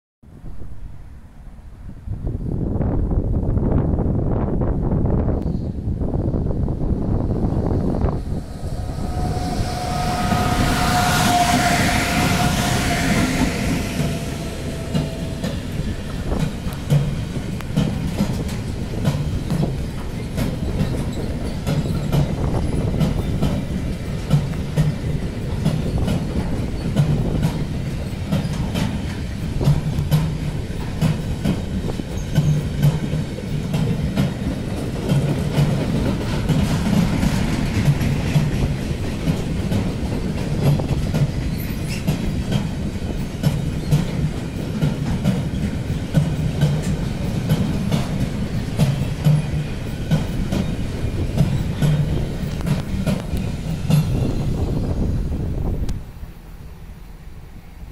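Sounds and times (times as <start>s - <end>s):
train wheels clacking over rail joints: 8.3s - 55.0s
faint wheel squeal: 8.4s - 15.6s.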